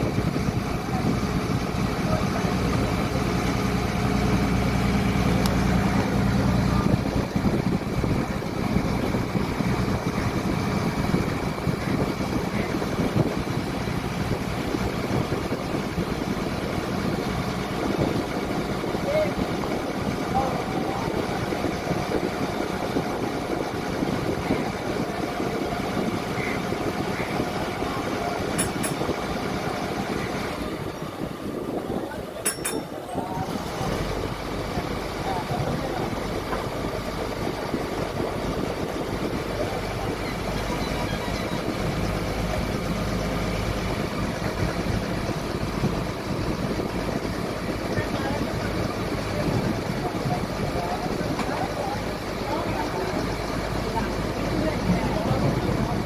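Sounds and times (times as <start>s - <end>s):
boat diesel engine rumbling: 0.0s - 56.0s.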